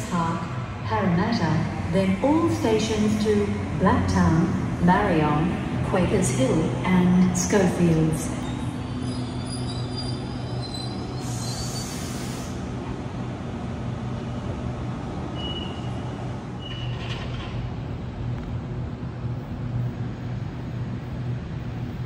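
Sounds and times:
electric train hum: 0.0s - 22.0s
air hiss: 11.2s - 12.6s.

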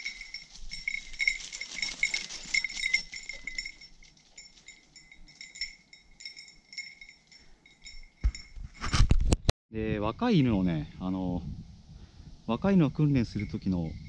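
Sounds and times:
small bell jingling on a dog: 0.0s - 9.2s, 13.2s - 14.0s.

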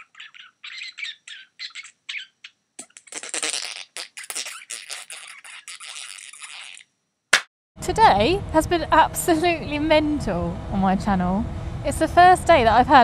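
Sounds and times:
scratchy noise bursts: 2.8s - 6.9s.

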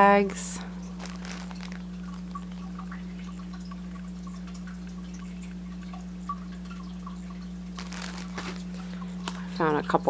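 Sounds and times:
low electrical hum: 0.0s - 10.0s
plastic-wrapped pack ticking: 0.9s - 4.1s, 7.7s - 9.5s.

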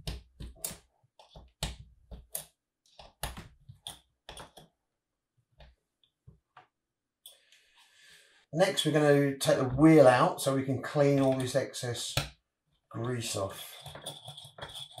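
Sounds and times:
hands tapping metal parts: 13.7s - 15.0s.

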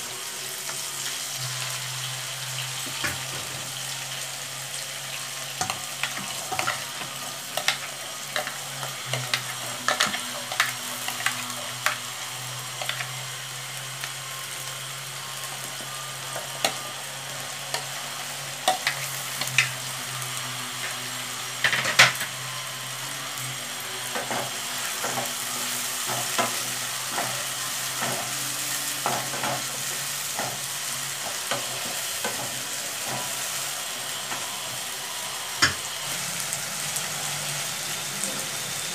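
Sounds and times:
onions sizzling in hot oil: 0.0s - 38.9s.

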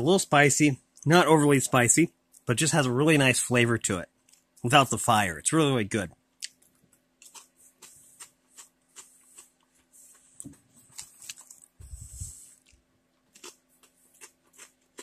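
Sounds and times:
chewing crunchy chips: 6.4s - 11.8s, 12.4s - 15.0s.

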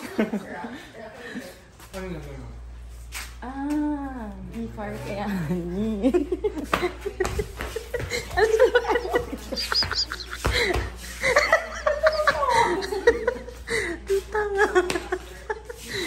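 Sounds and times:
woman laughing: 5.7s - 16.0s.

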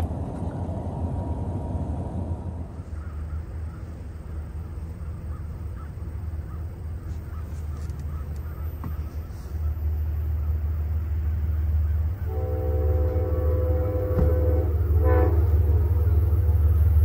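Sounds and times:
steady low rumble: 0.0s - 17.0s
bird calling: 2.7s - 12.4s.

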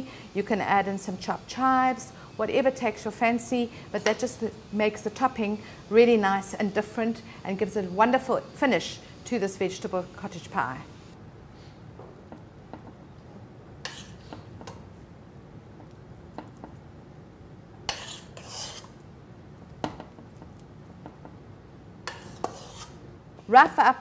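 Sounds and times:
spoon scraping a pot: 13.8s - 14.5s, 17.9s - 19.0s, 22.1s - 23.0s.

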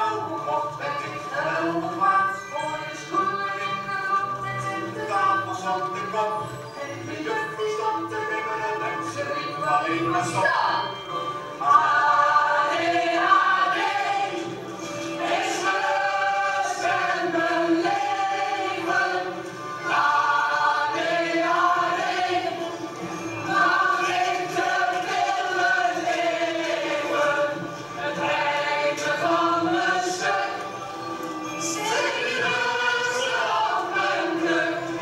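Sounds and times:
choir singing: 11.6s - 35.0s.

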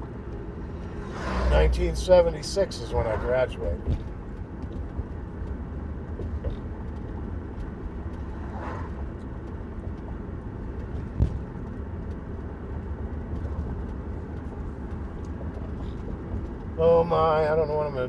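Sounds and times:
van road and engine rumble: 0.0s - 18.0s
short thump: 3.8s - 4.1s, 11.0s - 11.5s.

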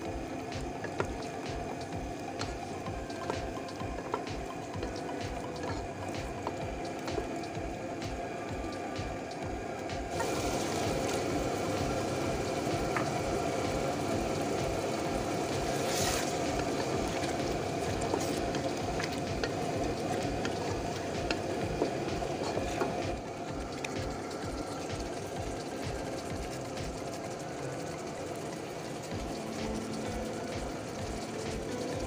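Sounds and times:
spatula stirring food in wok: 10.0s - 32.0s.

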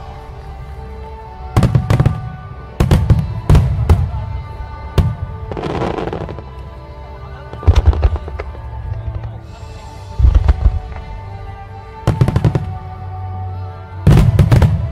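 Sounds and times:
firework crackling: 7.5s - 11.4s.

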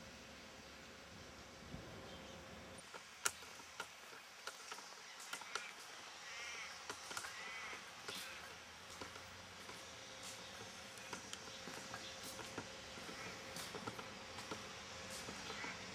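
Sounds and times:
faint steady hiss: 0.0s - 15.9s
crow cawing: 5.3s - 8.6s, 13.0s - 13.7s, 15.4s - 15.9s.

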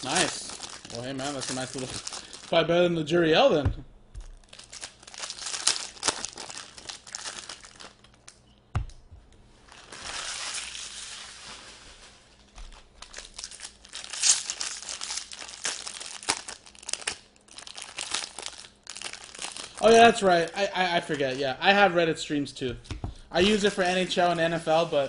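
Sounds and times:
card pack wrappers crinkling: 0.0s - 2.6s, 4.2s - 8.4s, 12.6s - 21.8s.

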